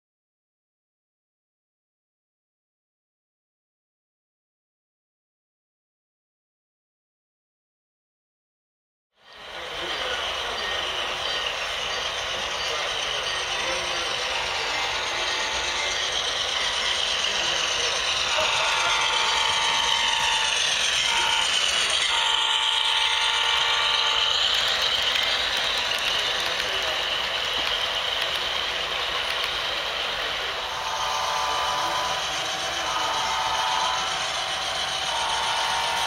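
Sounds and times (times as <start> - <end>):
model train wheels rattling: 9.3 - 36.0
diesel locomotive horn: 13.8 - 25.2, 30.6 - 36.0.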